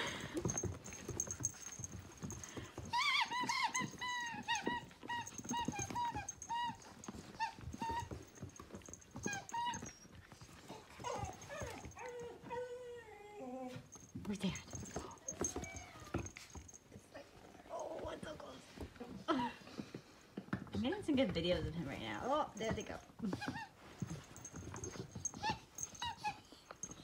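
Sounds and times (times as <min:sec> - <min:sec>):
dog whining and yipping: 0:00.0 - 0:16.8, 0:22.6 - 0:27.0.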